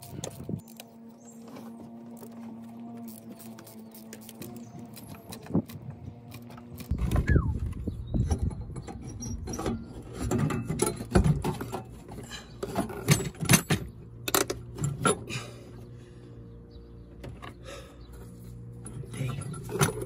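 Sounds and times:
metal clinks and scrapes: 8.2s - 15.3s, 18.7s - 20.0s.

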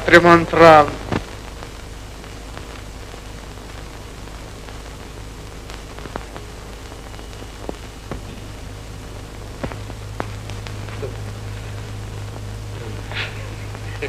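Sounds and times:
faint clicks and crackles: 0.0s - 14.0s
film soundtrack surface hiss: 0.0s - 14.0s
low hum: 0.0s - 14.0s.

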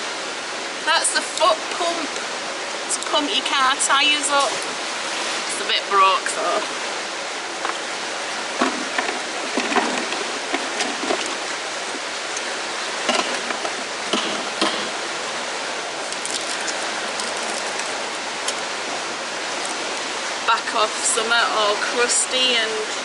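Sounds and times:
canal water rushing through lock: 0.0s - 23.0s
metal clicks and knocks: 13.0s - 15.0s.

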